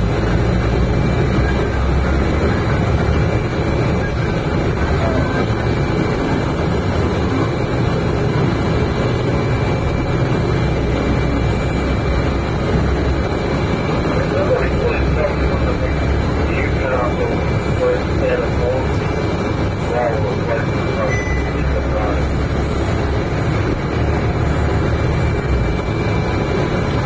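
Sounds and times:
diesel bus engine drone: 0.0 - 27.0
road and body noise: 0.0 - 27.0
faint high tone: 21.0 - 21.7.

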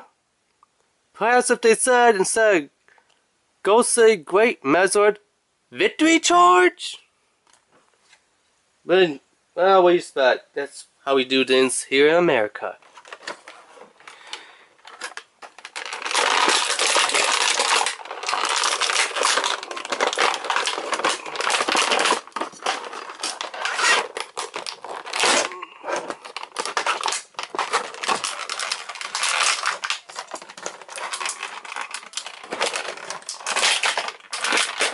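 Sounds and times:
plastic packaging crinkling: 12.8 - 34.9.

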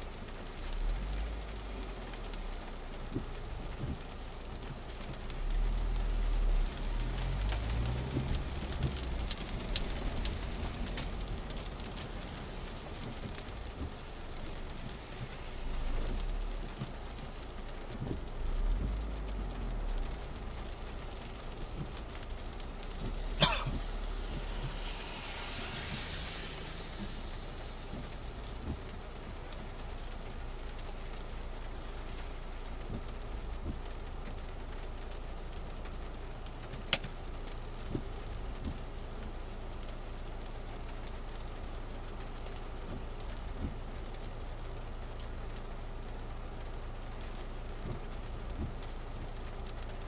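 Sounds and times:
low engine rumble: 0.0 - 50.0
rain on car roof: 0.0 - 50.0
brief high hiss: 23.5 - 27.7.

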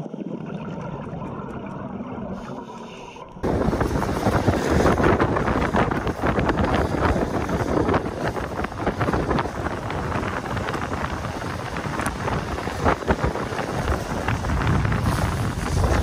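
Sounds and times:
skateboard wheels rolling on asphalt: 3.4 - 16.0
wind rushing over microphone: 3.4 - 16.0.

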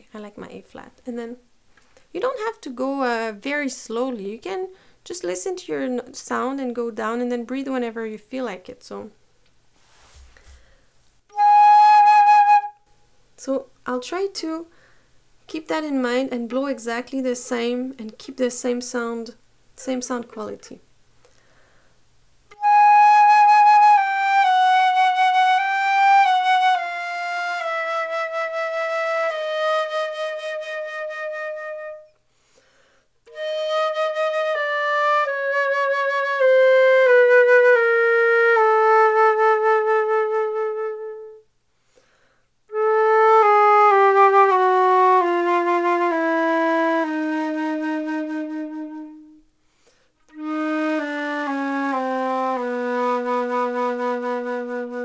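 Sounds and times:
flute playing descending scales: 11.3 - 12.9, 22.5 - 32.2, 33.3 - 41.4, 42.7 - 49.4, 50.3 - 55.0.

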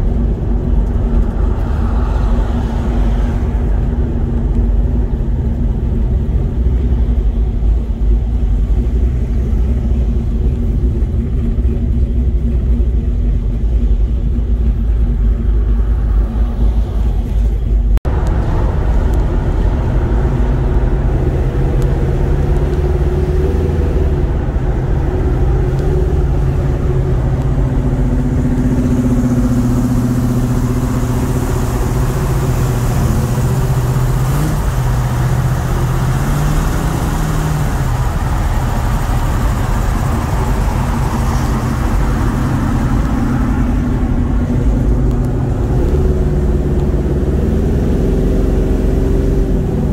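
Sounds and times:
car engine drone: 0.0 - 49.9.

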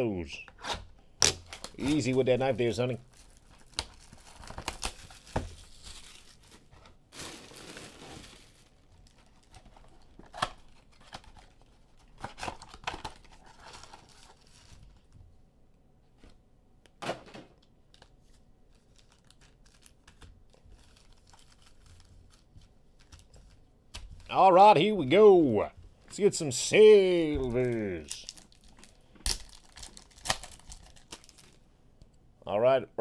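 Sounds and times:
plastic wrapping tearing and crinkling: 1.2 - 15.1, 17.9 - 24.3, 27.4 - 31.6.

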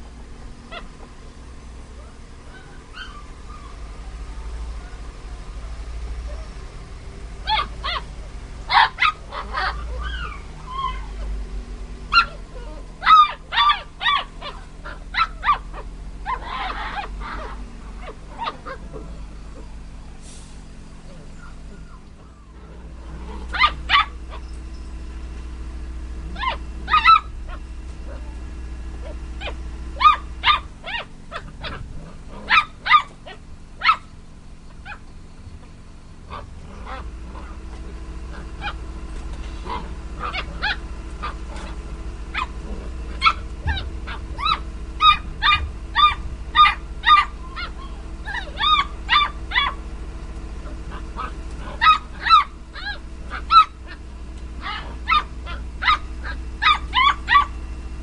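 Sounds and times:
puppies yipping and barking: 0.1 - 5.1, 7.4 - 11.4, 12.0 - 58.0.

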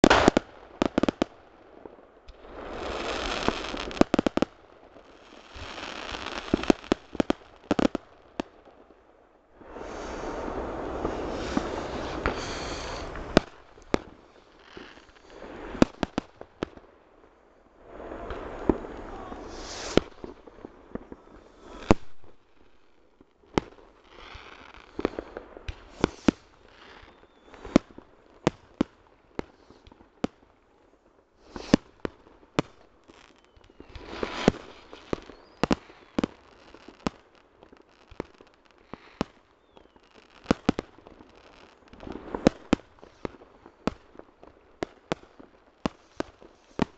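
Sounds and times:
fireworks bangs: 0.0 - 1.4, 2.3 - 8.0, 9.6 - 16.8, 17.9 - 22.4, 33.1 - 37.3
fireworks hissing and crackling: 0.0 - 8.9, 9.5 - 16.9, 17.8 - 30.5, 31.4 - 46.9.

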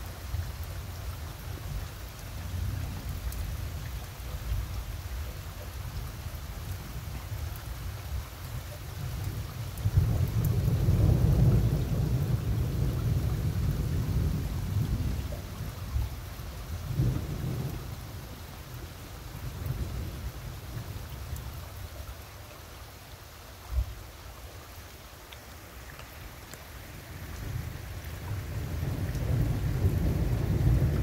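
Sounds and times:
steady rain: 0.0 - 31.0
thunder rumbling: 9.9 - 15.8, 16.8 - 18.0, 27.4 - 31.0.

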